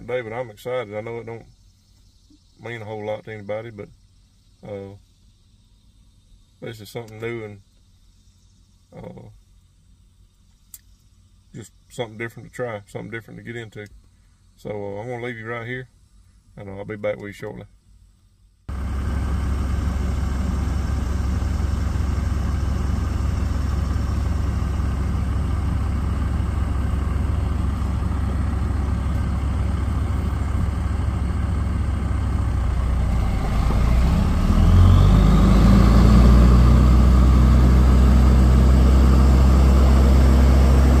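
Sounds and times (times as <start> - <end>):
diesel truck engine idling and revving: 18.7 - 41.0.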